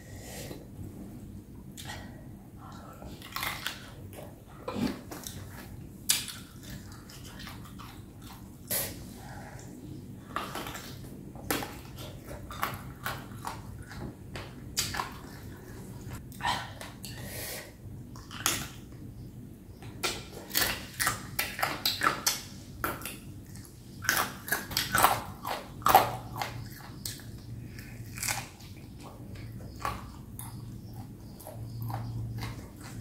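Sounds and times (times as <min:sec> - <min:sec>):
crisp chewing crunches: 0:23.0 - 0:33.0.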